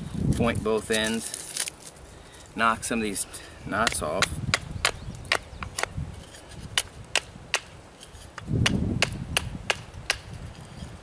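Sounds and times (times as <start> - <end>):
knife striking wooden stick: 8.4 - 10.4.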